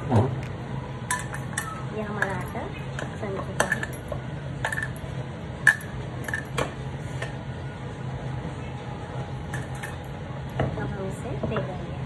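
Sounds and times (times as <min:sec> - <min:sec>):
metal bowl clinking: 0:01.1 - 0:06.6, 0:09.5 - 0:10.1.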